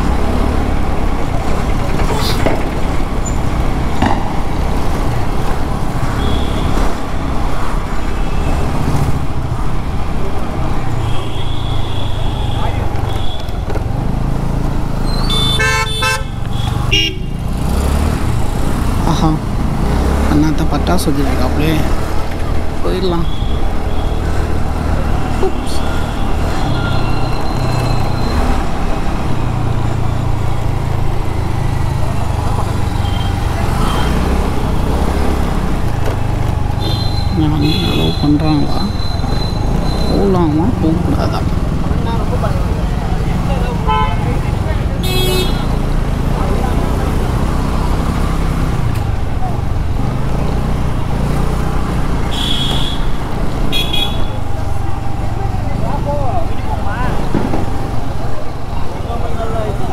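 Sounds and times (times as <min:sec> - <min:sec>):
scooter engine: 0:00.0 - 0:12.4, 0:13.0 - 0:59.9
road and traffic noise: 0:00.0 - 0:59.9.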